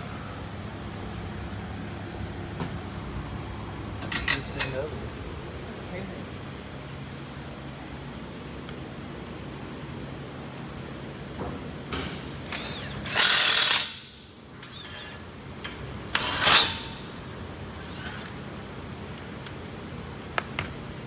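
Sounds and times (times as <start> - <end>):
tools and parts clinking: 4.0 - 4.8
power wrench bursts: 12.4 - 15.2, 16.1 - 17.0.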